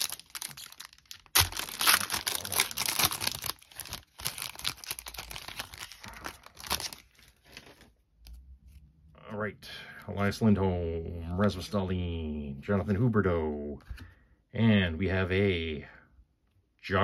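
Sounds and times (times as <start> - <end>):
foil crackling: 0.0 - 7.7
foil wrapper tearing: 0.0 - 7.7.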